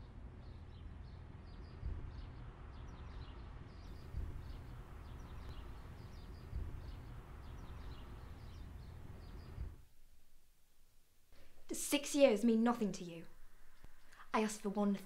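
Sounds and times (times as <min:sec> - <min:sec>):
small birds chirping: 0:00.0 - 0:09.8
steady low rumble: 0:00.0 - 0:10.0
brief low thumps: 0:01.8 - 0:03.3, 0:04.0 - 0:05.8, 0:06.5 - 0:08.0.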